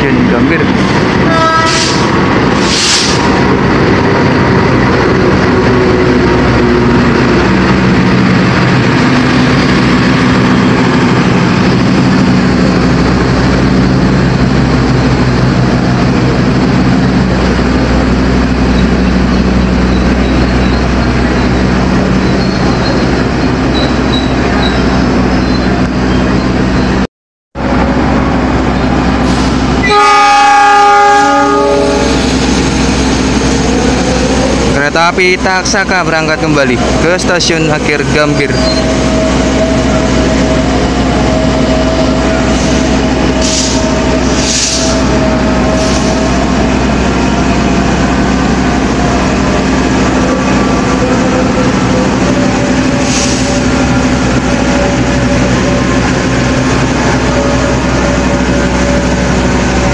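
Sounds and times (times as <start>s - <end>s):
diesel locomotive engine running: 0.0s - 59.9s
locomotive horn: 1.2s - 2.0s, 29.8s - 32.3s.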